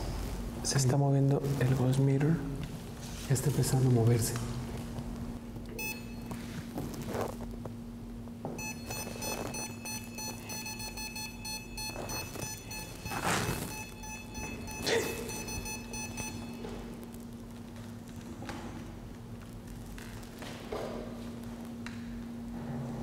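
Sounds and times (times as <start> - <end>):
low steady hum: 0.0 - 23.0
electronic meter beeping alarm: 5.8 - 6.4, 8.6 - 17.0.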